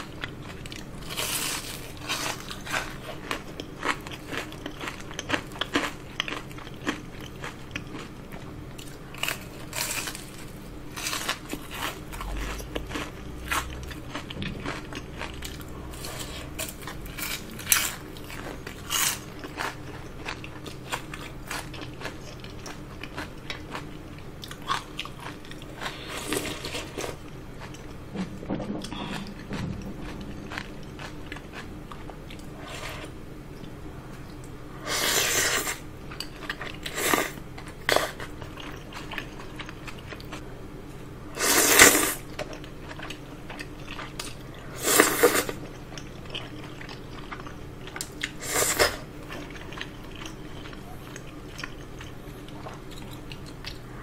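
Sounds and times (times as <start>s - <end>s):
chewing: 0.0s - 10.4s, 11.0s - 28.0s, 28.8s - 34.6s, 35.6s - 40.4s, 41.8s - 54.0s
slurping noodles: 41.4s - 42.2s, 44.8s - 45.6s.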